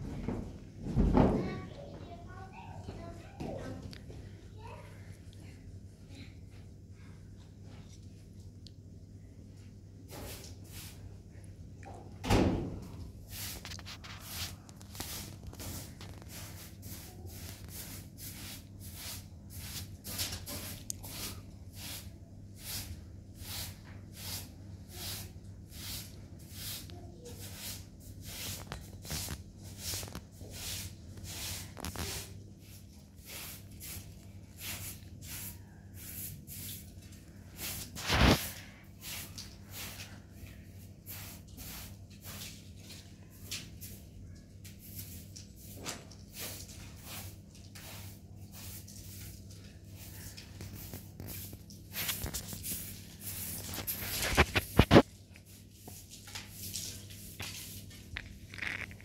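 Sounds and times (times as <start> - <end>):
hand broom sweeping carpet: 10.1 - 11.1, 12.9 - 58.8.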